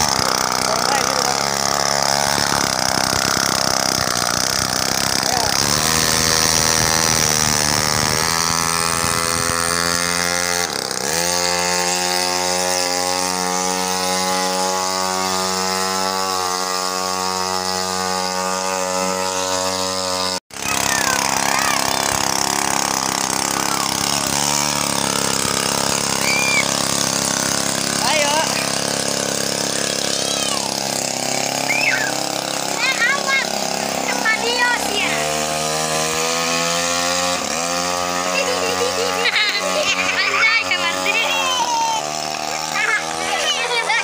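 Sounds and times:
small engine running high: 0.0s - 44.0s.

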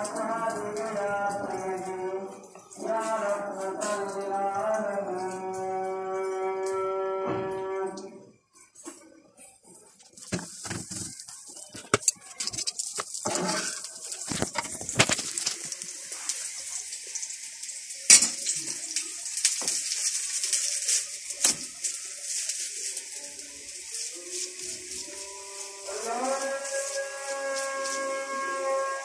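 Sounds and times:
utensils clicking and clattering: 0.0s - 6.9s, 10.0s - 29.0s
steady high hiss: 14.6s - 28.5s.

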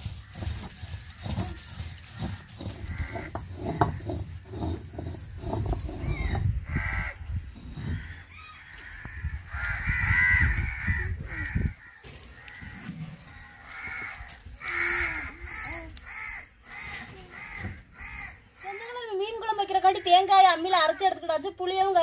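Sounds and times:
stone roller grinding on slab: 0.0s - 8.2s
crows cawing: 0.1s - 4.3s, 6.1s - 19.1s.

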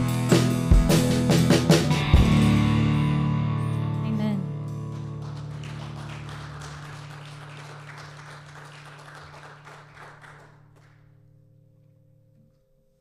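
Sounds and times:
congregation applauding: 4.9s - 11.3s.

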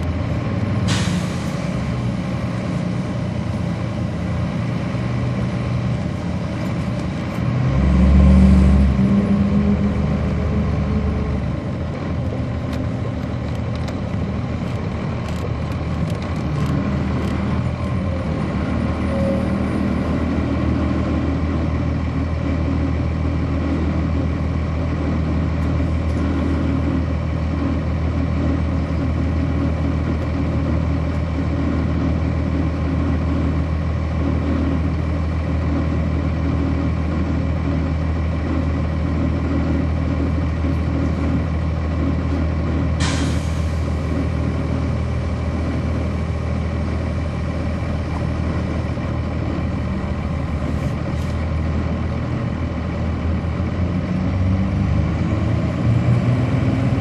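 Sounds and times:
bus diesel engine idling: 0.0s - 57.0s
compressed air hiss: 43.0s - 43.9s.

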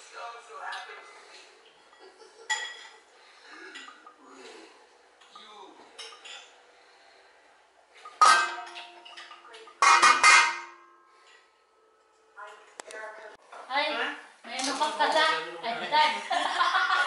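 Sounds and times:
metal pot and lid clattering: 8.0s - 10.9s.

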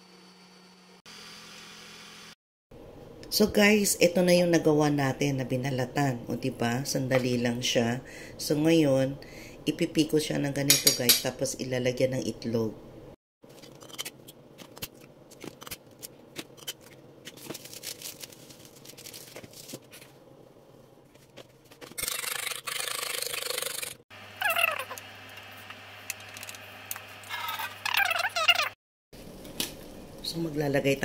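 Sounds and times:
fork beating eggs in a bowl: 22.0s - 24.0s
short squeaky wavering sounds: 22.0s - 25.0s, 27.3s - 28.8s.

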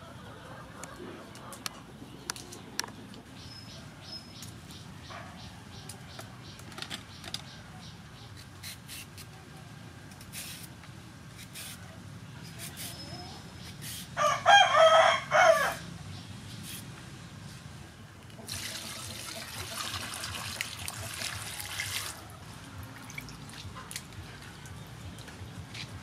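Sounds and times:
peeler scraping a cucumber: 8.3s - 9.3s, 12.4s - 14.1s
rooster crowing: 14.2s - 15.9s.

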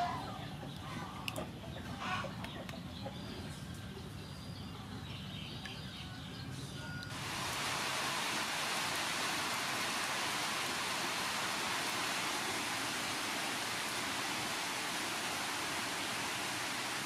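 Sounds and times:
rain falling on foliage: 7.1s - 17.0s.

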